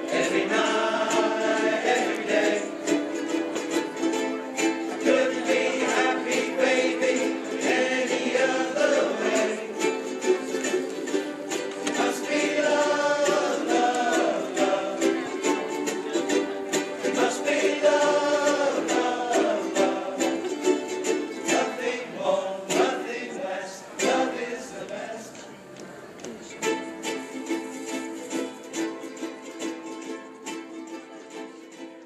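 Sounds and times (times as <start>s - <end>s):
voices singing: 0.0s - 28.7s
ukuleles strumming chords: 0.0s - 32.0s.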